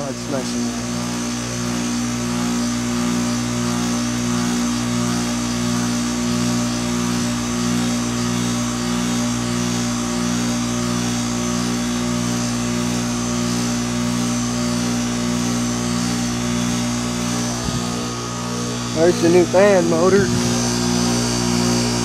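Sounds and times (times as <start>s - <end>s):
heat pump compressor hum: 0.0s - 22.0s.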